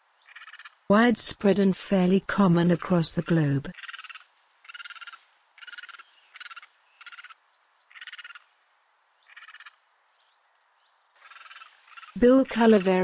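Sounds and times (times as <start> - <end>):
animal rattling calls: 0.3 - 0.8, 3.7 - 8.5, 9.3 - 9.8, 11.2 - 13.0.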